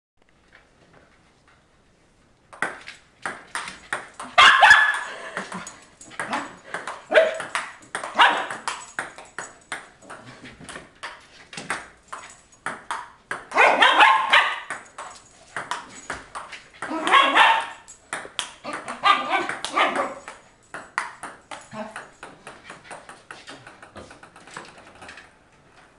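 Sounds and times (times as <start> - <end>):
dog barking: 4.4 - 5.1, 6.3 - 7.5, 8.1 - 8.6, 13.5 - 14.7, 16.9 - 17.9, 18.9 - 20.2.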